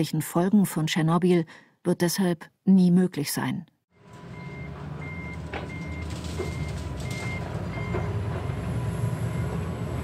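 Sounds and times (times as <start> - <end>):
low engine rumble: 4.0 - 10.0
reversing alarm beeping: 4.2 - 9.7.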